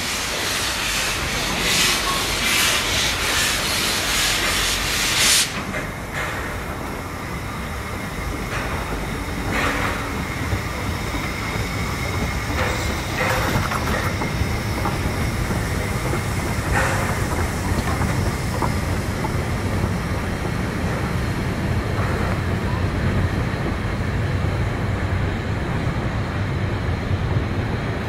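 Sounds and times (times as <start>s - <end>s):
steam locomotive rumbling past: 0.0s - 28.0s.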